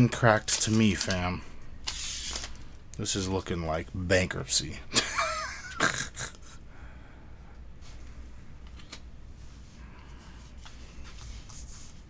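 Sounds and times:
steady low hum: 0:00.0 - 0:12.0
cards rustling: 0:00.4 - 0:02.8.

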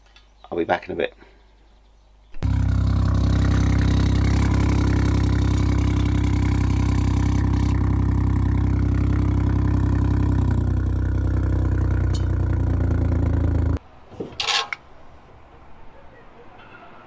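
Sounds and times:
car engine idling: 0:02.4 - 0:13.8
exhaust valve rattling: 0:02.4 - 0:13.8.

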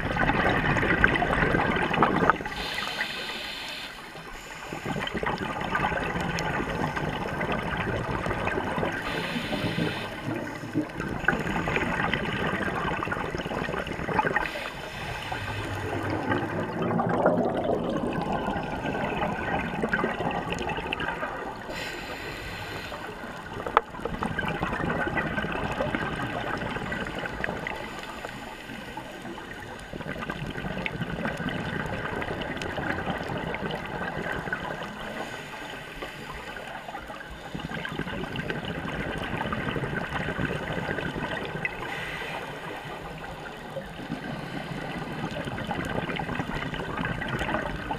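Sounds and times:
bubbles gurgling underwater: 0:00.0 - 0:03.2, 0:04.4 - 0:47.9
regulator breathing: 0:02.5 - 0:05.2, 0:09.0 - 0:10.4, 0:14.4 - 0:16.3, 0:21.7 - 0:23.4.

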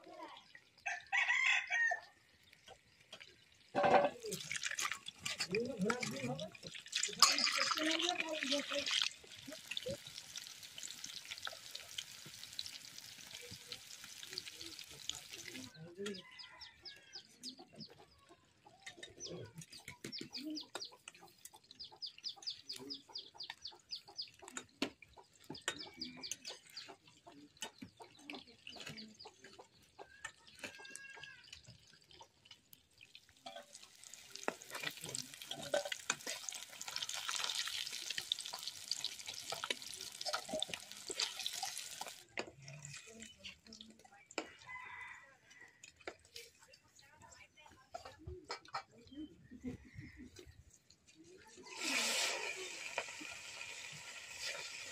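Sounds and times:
fish sizzling in hot oil: 0:02.0 - 0:15.8, 0:30.4 - 0:43.9, 0:51.6 - 0:54.9
chickens clucking: 0:07.2 - 0:47.0, 0:47.7 - 0:54.6
bird chirps: 0:18.8 - 0:24.5.

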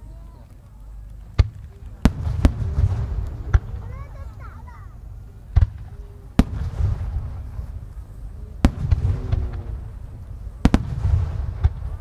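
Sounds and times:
firework bangs: 0:01.3 - 0:04.8, 0:05.5 - 0:12.0
low rumble of booms: 0:01.4 - 0:04.2, 0:05.5 - 0:12.0.

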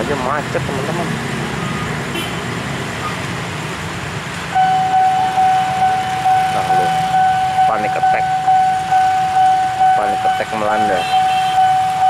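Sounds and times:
motorbike and car engines running: 0:00.0 - 0:04.4
pulsing crossing warning alarm: 0:04.5 - 0:12.0.

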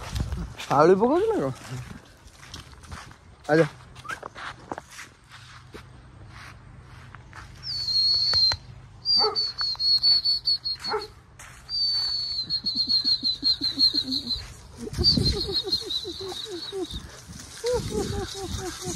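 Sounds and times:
dog yelping: 0:09.1 - 0:09.6, 0:10.8 - 0:11.1
high steady trilling call: 0:11.7 - 0:18.9.

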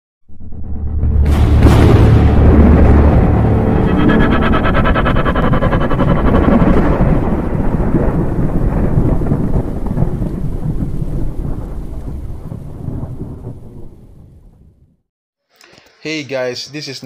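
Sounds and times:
rolling thunder: 0:01.3 - 0:15.0
rain: 0:07.1 - 0:14.3.

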